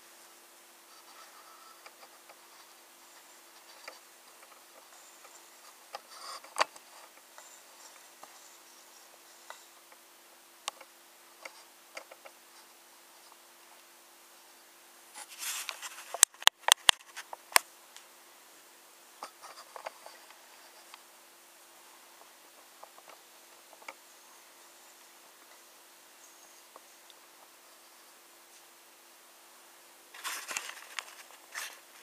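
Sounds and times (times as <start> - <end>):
faint steady hum: 0.0 - 32.0
rustle: 0.0 - 32.0.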